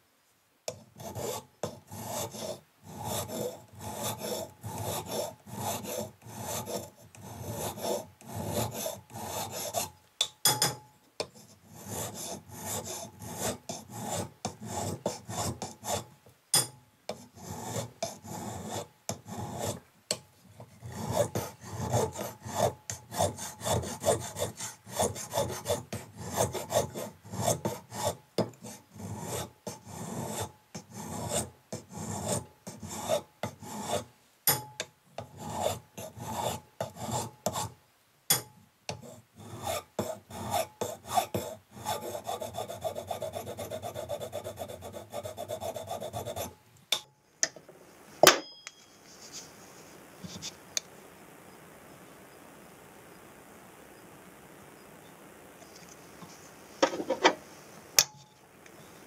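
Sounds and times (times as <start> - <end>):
file rasping on wood: 0.7 - 9.9, 11.2 - 16.1, 17.1 - 19.8, 20.6 - 34.1, 35.2 - 37.7, 38.9 - 46.6.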